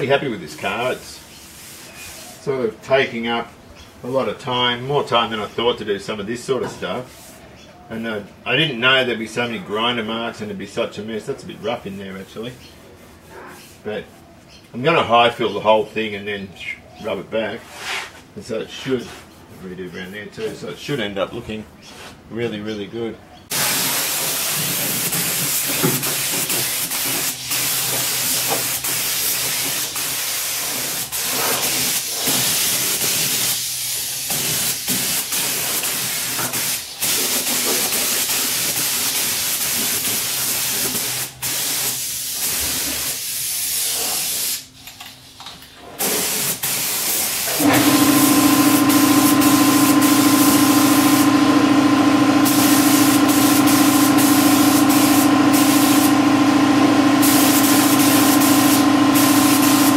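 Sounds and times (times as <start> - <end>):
spray gun hissing: 23.5 - 44.7, 46.0 - 59.9
air compressor humming: 23.5 - 44.8, 46.0 - 59.9.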